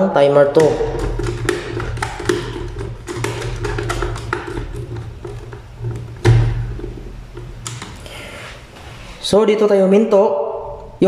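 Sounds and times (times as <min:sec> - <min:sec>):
clicks and taps fitting wire: 0:00.6 - 0:08.0.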